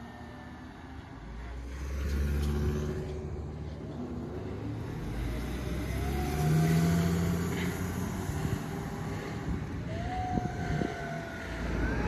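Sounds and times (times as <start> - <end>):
faint siren wail: 0.0 - 1.7, 5.3 - 12.0
ambulance driving past: 0.0 - 12.0.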